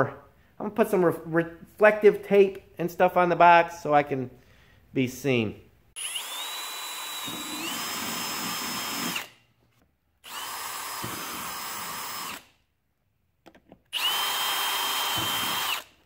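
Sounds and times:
cordless drill driving screws: 0:06.0 - 0:09.4, 0:10.2 - 0:12.5, 0:13.9 - 0:16.0.

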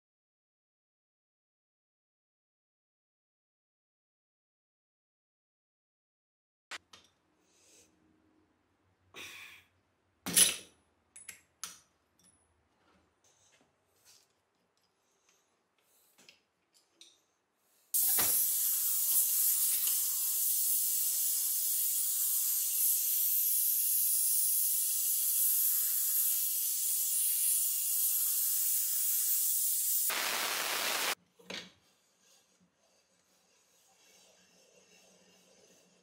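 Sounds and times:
compressed air blow gun hissing: 0:17.9 - 0:31.2.

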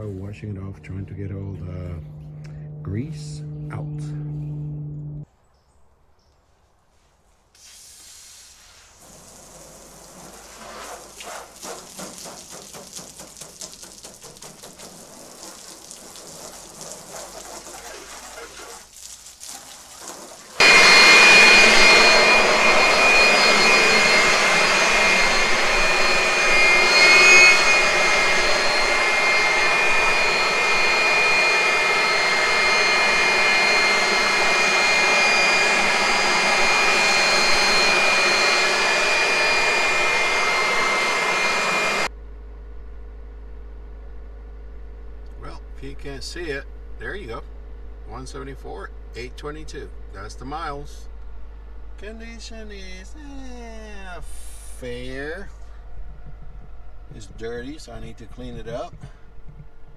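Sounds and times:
compressed air blow gun rushing: 0:07.6 - 0:18.9, 0:19.6 - 0:42.1.

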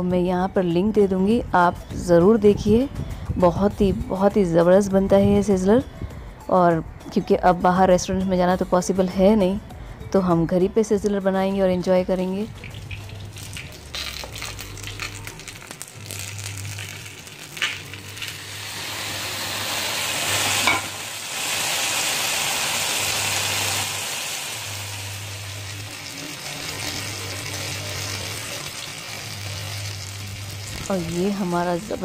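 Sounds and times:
food sizzling on a hot plate: 0:12.6 - 0:32.0.

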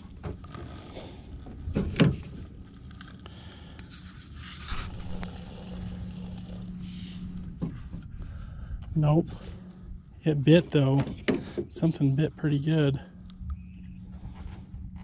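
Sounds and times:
low motor hum: 0:00.0 - 0:15.0
rubbing and scraping handling noise: 0:03.8 - 0:08.4.

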